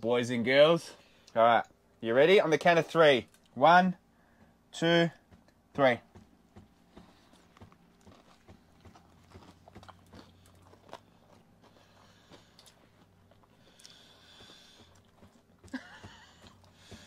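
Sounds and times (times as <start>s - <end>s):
faint chewing: 3.3s - 3.6s, 6.2s - 17.0s.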